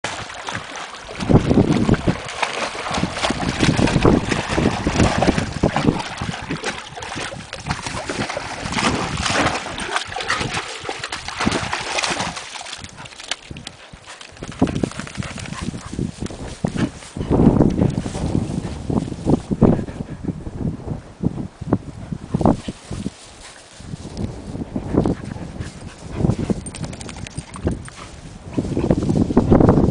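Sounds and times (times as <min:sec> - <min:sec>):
dogs splashing through water: 0:00.0 - 0:19.4, 0:25.0 - 0:29.3
wind buffeting microphone: 0:00.1 - 0:29.9.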